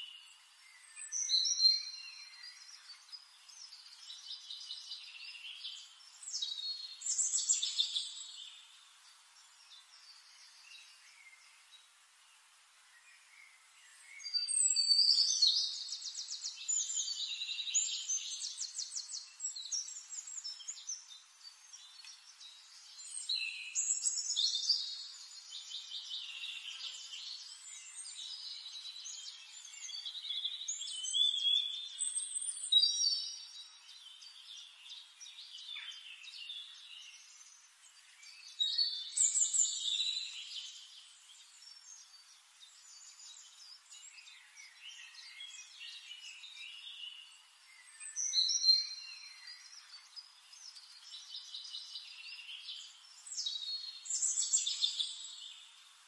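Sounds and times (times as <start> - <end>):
songbird trilling and whistling: 53.3 - 55.4.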